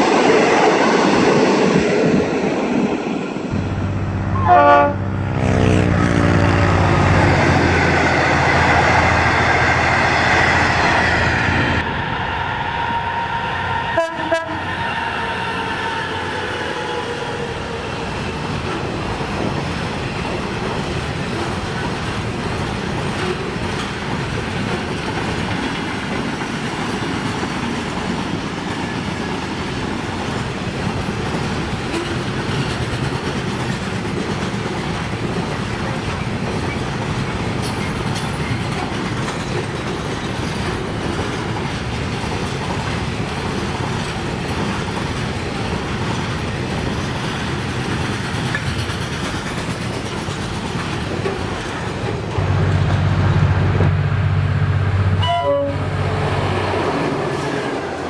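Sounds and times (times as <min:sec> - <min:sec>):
train rolling on track: 0:00.0 - 0:58.0
train horn: 0:03.9 - 0:07.2, 0:12.7 - 0:16.2, 0:55.2 - 0:56.0
train wheels clacking: 0:15.0 - 0:53.2.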